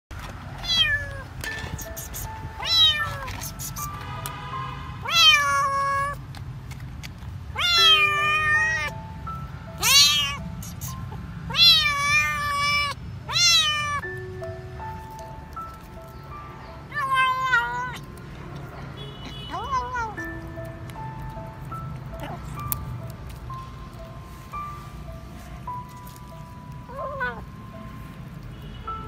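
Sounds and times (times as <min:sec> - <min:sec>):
soft background music: 0:00.2 - 0:29.0
kitten meowing: 0:00.6 - 0:04.0, 0:05.0 - 0:06.2, 0:07.6 - 0:09.1, 0:09.8 - 0:14.1, 0:16.9 - 0:18.2, 0:19.2 - 0:20.5, 0:26.8 - 0:27.6.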